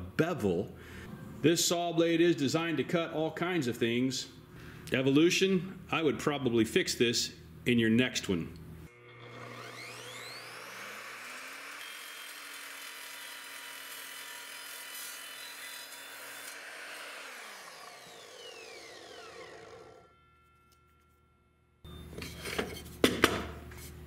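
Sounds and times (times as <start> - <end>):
miter saw running: 8.9 - 20.4
saw motor winding down: 8.9 - 20.8.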